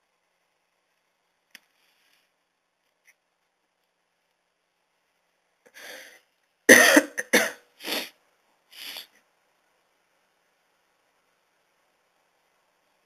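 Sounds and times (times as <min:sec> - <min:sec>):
man coughing: 0:06.7 - 0:07.6.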